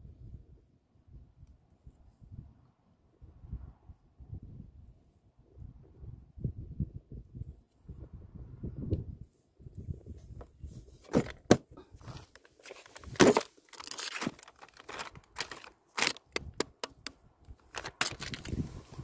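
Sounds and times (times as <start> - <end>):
plastic bag crinkling: 12.1 - 16.4, 17.6 - 18.6
plastic box clicking shut: 12.6 - 18.4.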